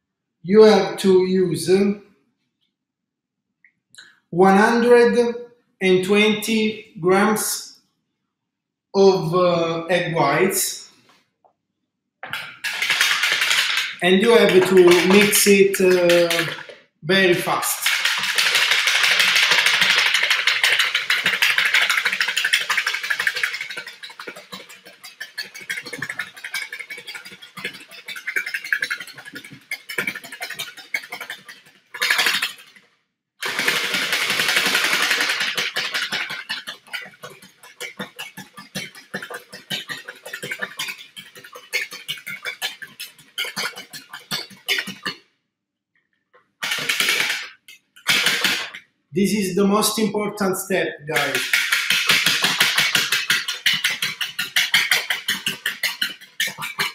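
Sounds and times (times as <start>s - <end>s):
whisk clicking against plastic bowl: 12.3s - 32.8s, 33.4s - 45.2s, 46.6s - 48.8s, 51.2s - 56.9s.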